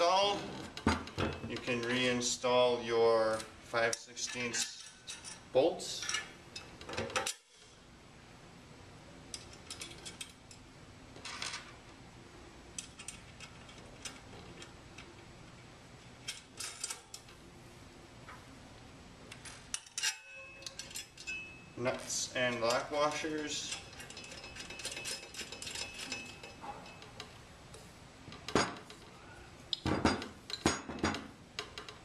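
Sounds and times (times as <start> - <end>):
low steady hum: 0.0 - 32.0
metallic clicks of bolts and nuts: 9.3 - 10.6, 12.7 - 15.2, 19.3 - 21.5, 22.4 - 29.0, 29.7 - 32.0.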